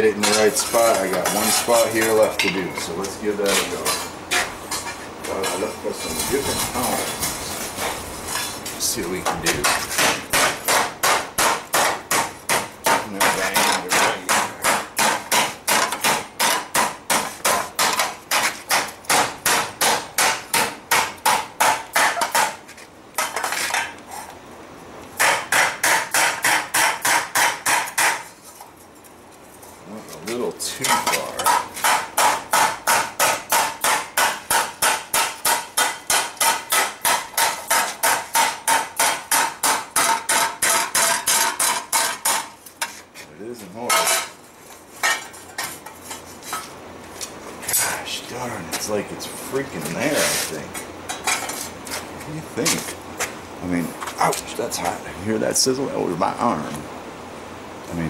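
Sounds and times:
hammer striking hot steel: 9.2s - 22.6s, 25.2s - 28.3s, 30.8s - 42.6s.

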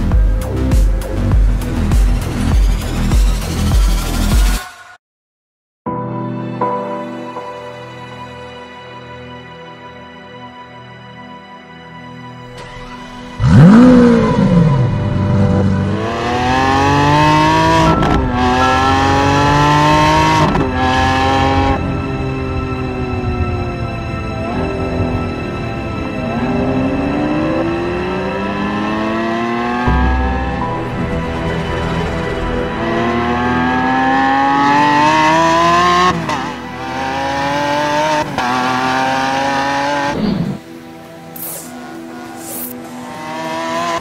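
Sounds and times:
sports car engine accelerating: 13.3s - 23.8s, 24.4s - 40.6s.

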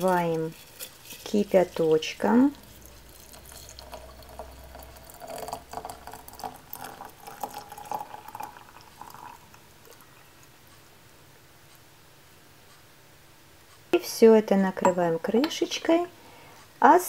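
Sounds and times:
water pouring into teapot: 0.1s - 10.5s.

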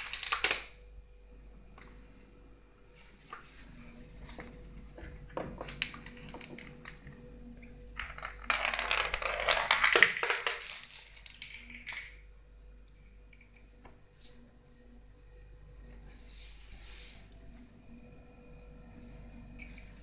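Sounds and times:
walnut rattling on tiles: 0.0s - 0.8s, 3.6s - 7.2s, 8.0s - 12.2s.

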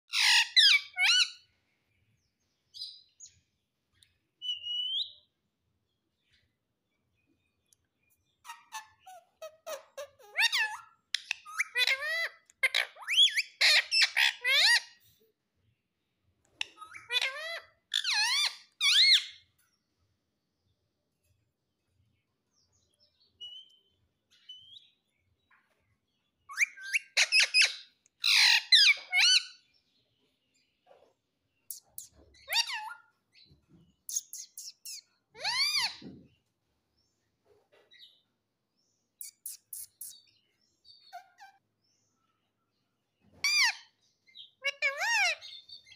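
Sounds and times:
parakeet chirping: 0.1s - 1.4s, 8.4s - 15.0s, 16.5s - 19.4s, 26.5s - 29.7s, 31.7s - 33.4s, 34.0s - 36.1s, 39.2s - 41.6s, 43.4s - 45.9s
parakeet squawking: 0.1s - 1.4s, 8.4s - 15.0s, 16.6s - 19.3s, 26.5s - 29.6s, 31.8s - 33.1s, 34.1s - 36.1s, 44.6s - 45.6s.

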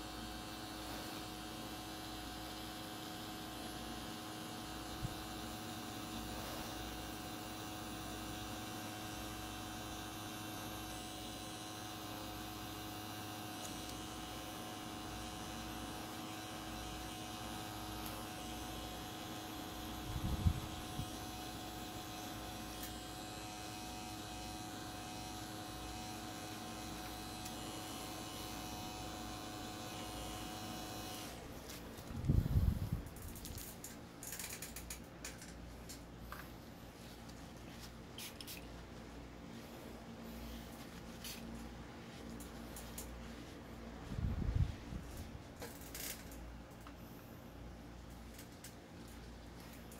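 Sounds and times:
tattoo machine humming: 0.0s - 36.4s, 45.0s - 46.8s.

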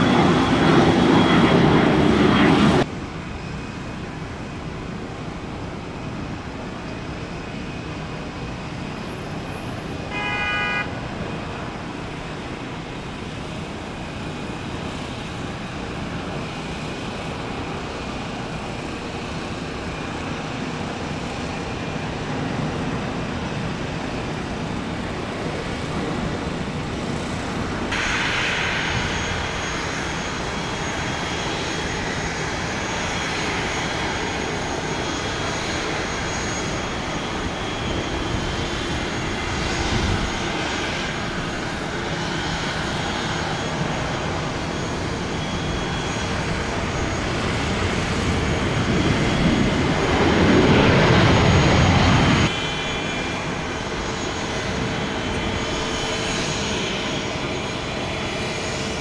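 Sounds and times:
jet landing: 0.0s - 59.0s
horn-like toot: 10.1s - 10.9s.

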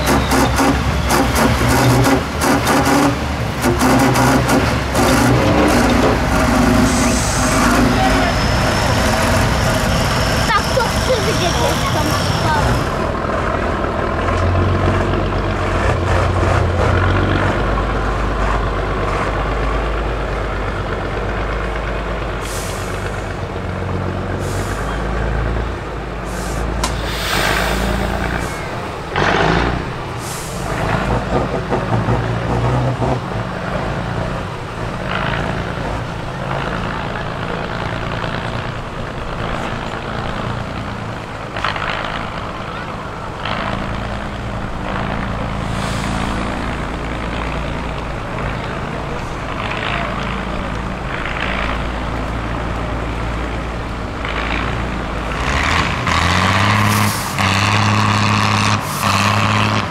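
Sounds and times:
truck diesel engine under load: 0.0s - 59.9s
short hissing bursts: 26.3s - 28.6s.

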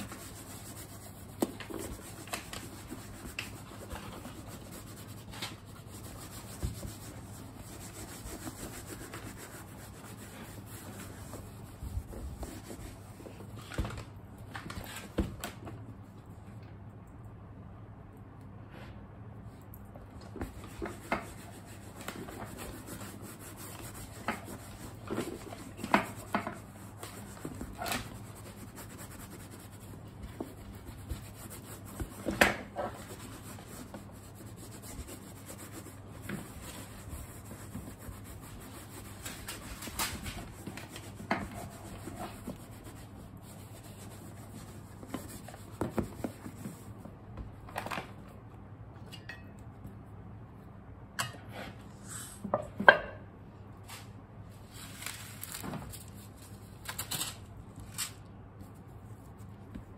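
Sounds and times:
cloth wiping leather: 2.8s - 13.3s, 20.9s - 39.8s.

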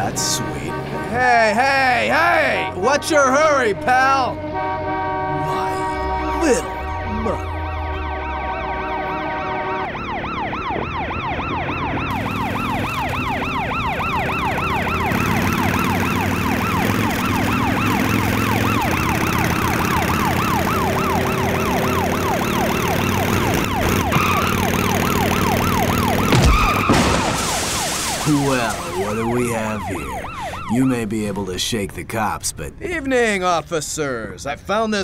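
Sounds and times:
car horns: 0.0s - 10.2s
traffic rumble: 0.0s - 35.0s
police siren yelping: 4.0s - 31.3s.

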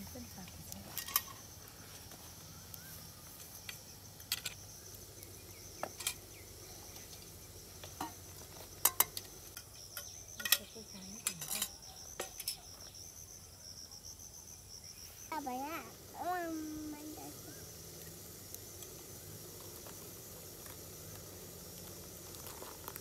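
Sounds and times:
high insect chorus: 0.0s - 23.0s
metal cookware clinking: 0.9s - 1.4s, 8.8s - 12.7s.

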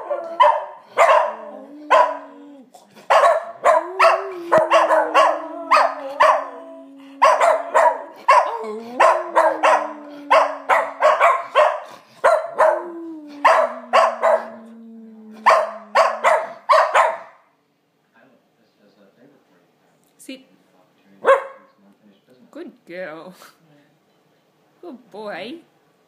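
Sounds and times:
dogs barking: 0.0s - 2.4s, 3.0s - 14.6s, 15.4s - 17.5s, 21.2s - 21.7s
dogs howling: 0.0s - 17.2s.

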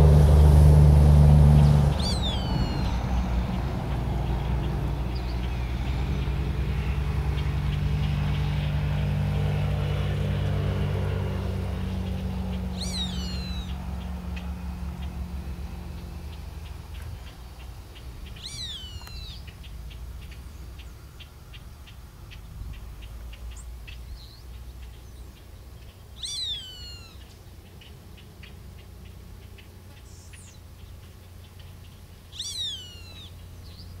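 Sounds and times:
low rumble: 0.0s - 23.8s
hawk calling: 1.9s - 3.5s, 12.6s - 14.2s, 18.2s - 20.0s, 26.2s - 27.3s, 32.3s - 33.4s
faint scattered clicks: 16.0s - 26.0s.

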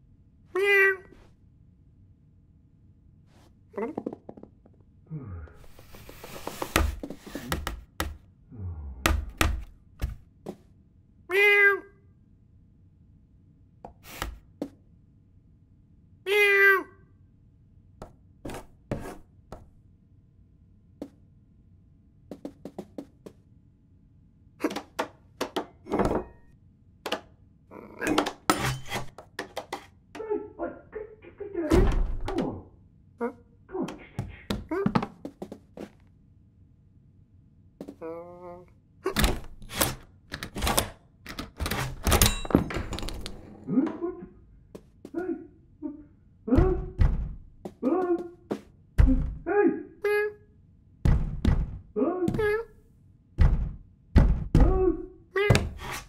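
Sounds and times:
cartoon cat meow: 0.5s - 1.1s, 11.3s - 12.0s, 16.2s - 17.0s
cartoon knocks and thuds: 3.8s - 4.8s, 6.6s - 8.3s, 9.0s - 10.6s, 31.7s - 32.7s, 46.5s - 49.5s, 51.0s - 52.7s, 53.4s - 55.9s.

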